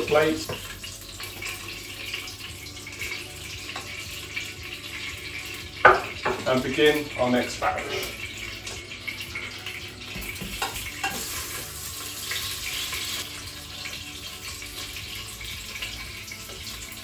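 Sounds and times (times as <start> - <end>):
sausages sizzling in oil: 0.0 - 17.0.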